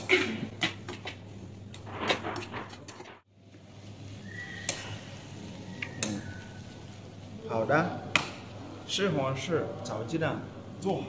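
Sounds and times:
frying hiss: 3.3s - 11.0s.

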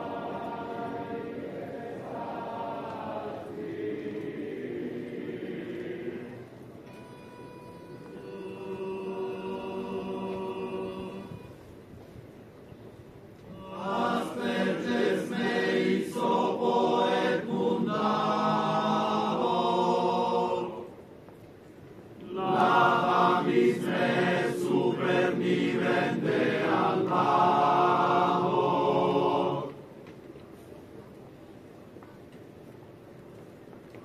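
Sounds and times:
choir chanting in unison: 0.0s - 6.5s, 8.4s - 11.4s, 13.5s - 21.0s, 22.2s - 29.8s.

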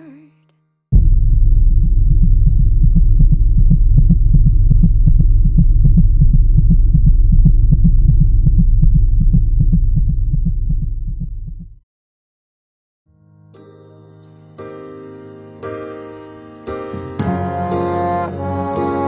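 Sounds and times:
deep underwater-like rumble: 1.0s - 11.8s
heartbeat pulses: 1.0s - 11.8s
thin steady high tone: 1.7s - 11.6s.

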